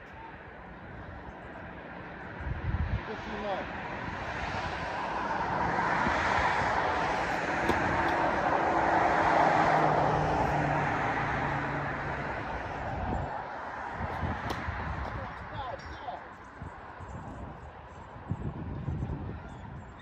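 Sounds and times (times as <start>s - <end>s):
vehicle passing: 1.5s - 19.3s.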